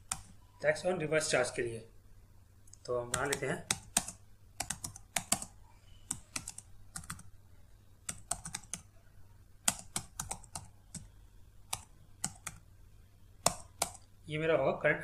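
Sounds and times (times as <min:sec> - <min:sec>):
computer keyboard typing: 0:00.0 - 0:00.4, 0:02.7 - 0:07.4, 0:08.0 - 0:08.9, 0:09.6 - 0:12.7, 0:13.4 - 0:14.1
faint low hum: 0:00.0 - 0:15.0.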